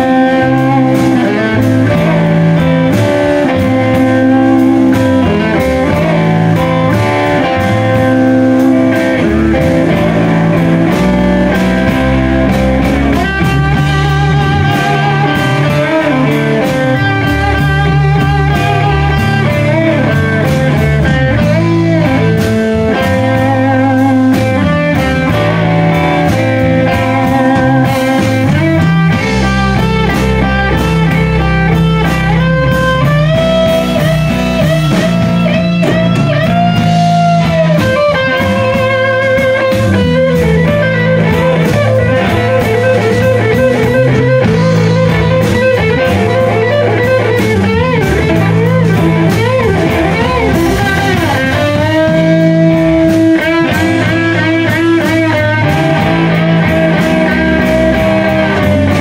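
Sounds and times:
blues-rock band playing: 0.0s - 59.0s
lead electric guitar solo: 0.0s - 59.0s.

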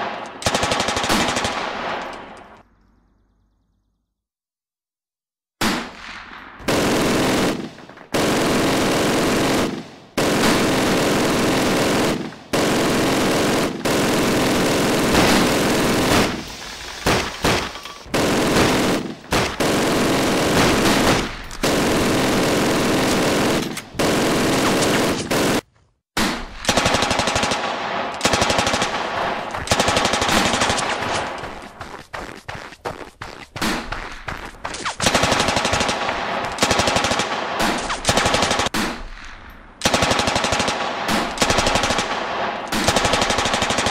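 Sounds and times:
machine-gun fire: 0.0s - 2.1s, 6.6s - 25.6s, 26.4s - 31.7s, 33.6s - 43.9s
sharp separate gunshots: 5.6s - 25.6s.

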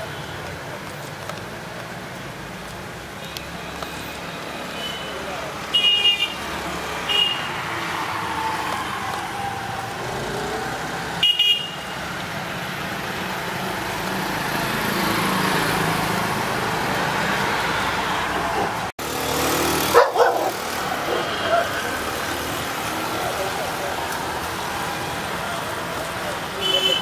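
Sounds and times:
road traffic noise: 0.0s - 27.0s
car horn toot: 11.2s - 11.9s, 26.6s - 27.0s.

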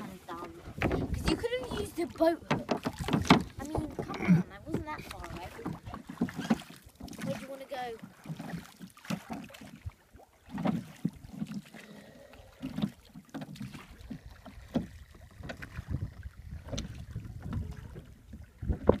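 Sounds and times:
wind on microphone: 0.0s - 6.1s, 13.9s - 19.0s
oars splashing in water: 0.0s - 19.0s.

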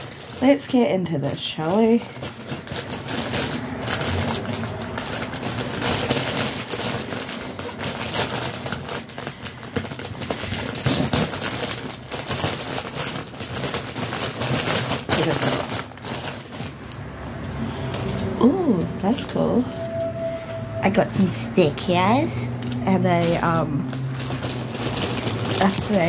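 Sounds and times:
plastic bag crinkling: 0.0s - 26.0s.

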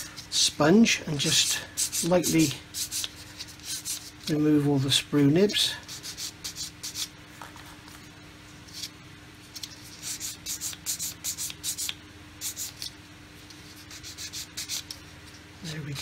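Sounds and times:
faint steady hum: 0.0s - 16.0s
sanding sponge rubbing plastic: 13.6s - 14.9s.

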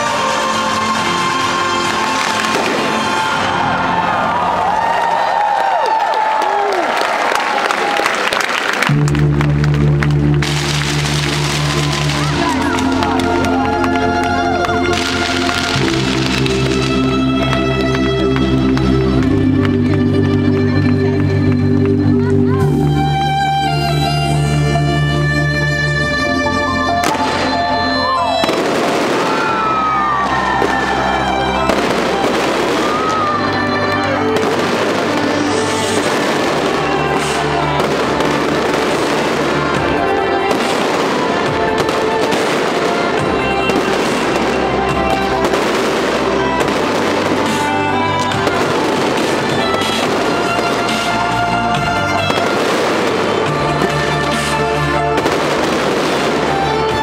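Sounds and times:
fireworks bangs and crackling: 0.0s - 4.3s, 10.2s - 19.2s, 27.0s - 57.0s
loud music with held notes: 0.0s - 4.5s, 8.9s - 57.0s.

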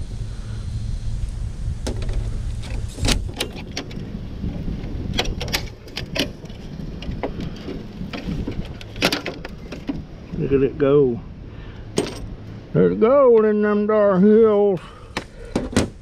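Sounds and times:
steady low rumble: 0.0s - 16.0s
metallic clicks and knocks: 1.9s - 10.0s.

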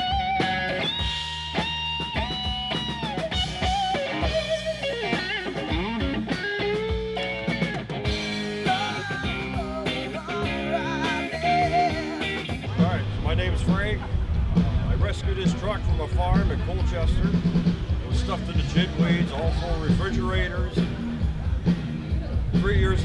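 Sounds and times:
drum kit: 0.0s - 23.0s
electric guitar: 0.0s - 23.0s
person singing: 8.4s - 12.8s.

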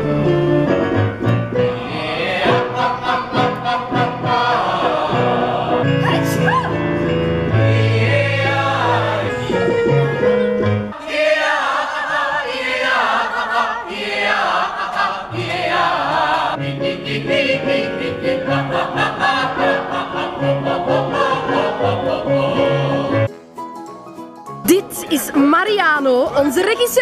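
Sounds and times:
group singing vocal warm-up: 1.2s - 23.3s.

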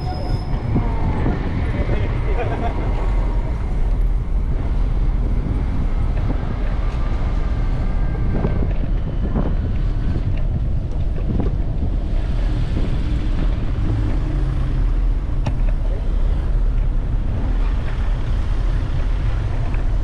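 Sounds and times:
faint high squeals: 0.0s - 1.2s
city traffic noise: 0.0s - 20.0s
wind buffeting microphone: 0.0s - 20.0s.

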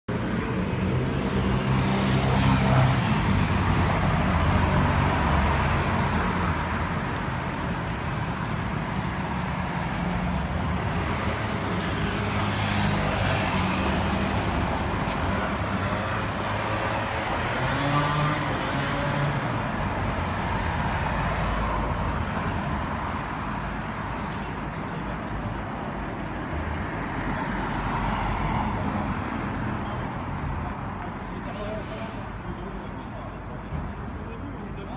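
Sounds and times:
shop background noise: 0.1s - 20.9s.

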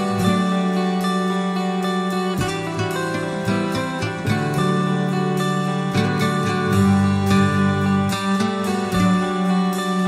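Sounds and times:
instrumental background music: 0.0s - 10.0s.

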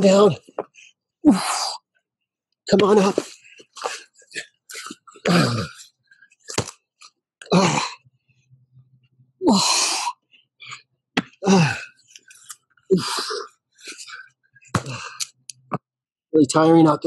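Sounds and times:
man grunting with effort: 5.2s - 5.8s, 7.4s - 8.0s, 11.4s - 11.9s.

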